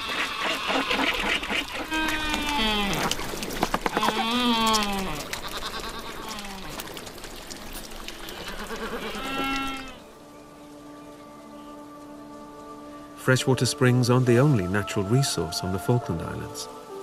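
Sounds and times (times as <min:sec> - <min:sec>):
penguins bleating calls: 0:00.1 - 0:03.2
water splashing onto rock: 0:01.0 - 0:10.0.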